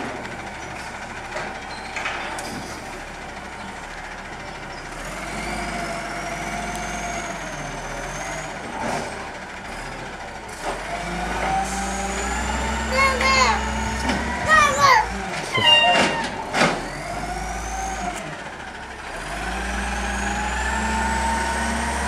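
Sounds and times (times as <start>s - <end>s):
truck engine revving: 4.8s - 22.0s.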